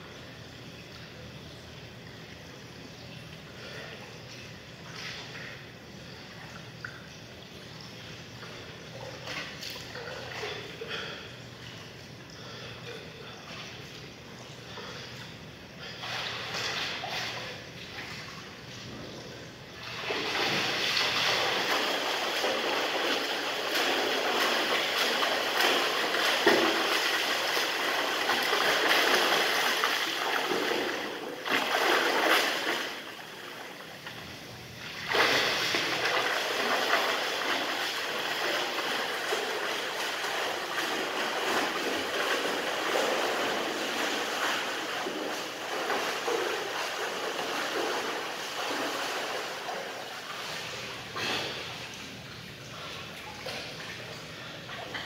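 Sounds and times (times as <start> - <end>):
swimmer splashing water: 1.9 - 55.0.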